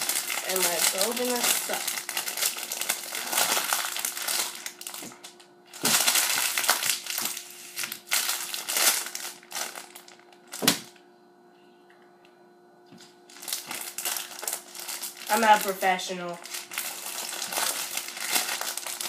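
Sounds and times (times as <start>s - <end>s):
plastic bag crinkling: 0.0s - 10.9s, 13.0s - 19.0s
loud sharp plastic crack: 10.5s - 11.0s.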